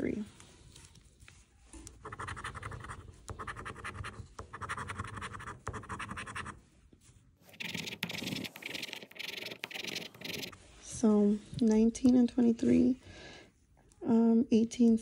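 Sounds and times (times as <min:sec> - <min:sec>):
coin scratching lottery ticket: 0:02.0 - 0:06.6, 0:07.5 - 0:10.6.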